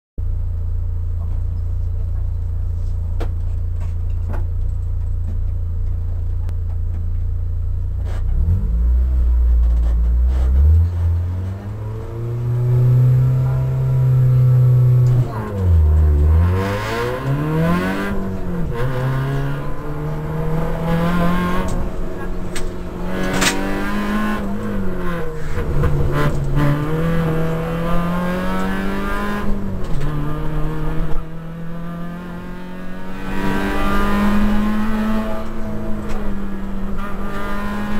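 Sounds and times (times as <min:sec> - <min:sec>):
car engine revving and accelerating: 0:08.0 - 0:37.9.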